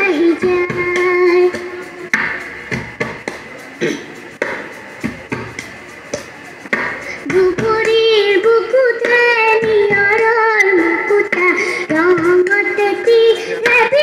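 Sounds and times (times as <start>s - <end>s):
girl singing through pa: 0.0s - 2.4s, 7.1s - 14.0s
live band playing: 0.0s - 14.0s
sharp rhythmic hits: 0.0s - 14.0s.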